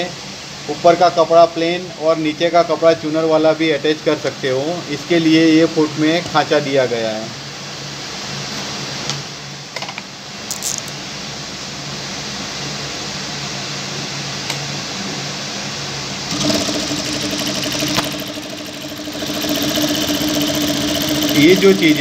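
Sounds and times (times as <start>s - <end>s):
sewing machine running: 16.3s - 22.0s.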